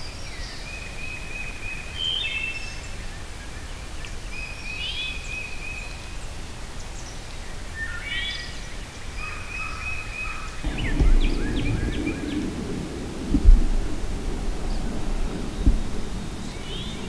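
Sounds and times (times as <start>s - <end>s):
songbirds singing: 0.0s - 17.0s
low rumbling noise: 10.6s - 17.0s.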